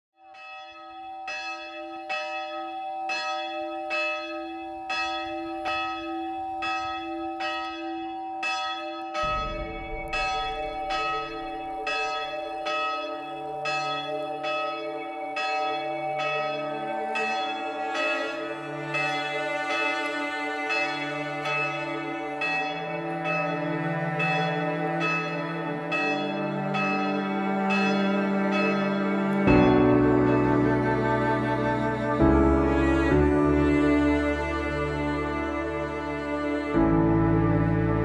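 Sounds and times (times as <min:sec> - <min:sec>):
deeper church bells ringing: 0:00.2 - 0:38.0
single bell tolling: 0:08.4 - 0:14.0.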